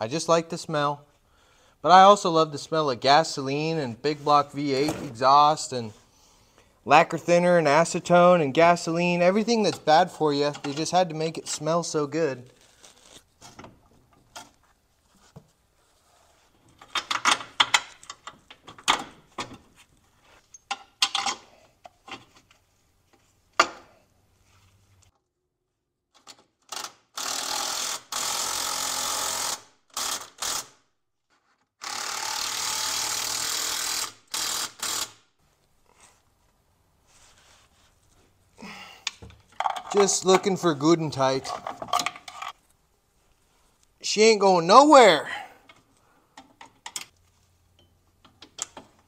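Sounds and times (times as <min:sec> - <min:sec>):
tools and parts clattering: 0:16.6 - 0:19.8, 0:20.5 - 0:22.6, 0:39.1 - 0:40.6, 0:41.4 - 0:42.6
power ratchet running: 0:26.8 - 0:30.7, 0:31.8 - 0:35.2.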